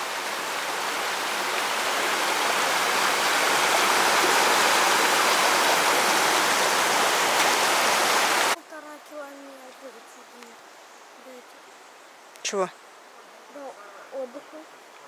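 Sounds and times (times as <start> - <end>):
river rushing: 0.0 - 8.6.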